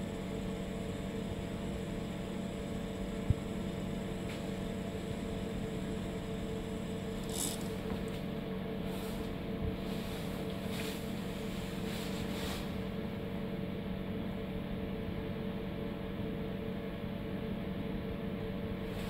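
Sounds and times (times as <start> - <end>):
milling machine humming: 0.0 - 14.6.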